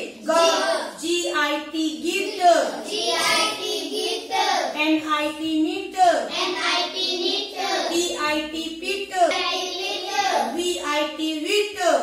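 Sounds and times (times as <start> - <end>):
child chanting in sing-song voice: 2.6 - 4.8, 6.3 - 8.0, 9.3 - 10.6.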